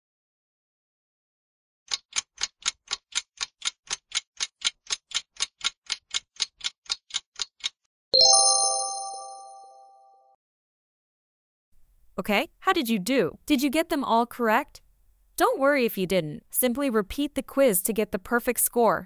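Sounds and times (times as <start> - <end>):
clock ticking: 1.9 - 7.8
bright multi-tone chime: 8.2 - 10.2.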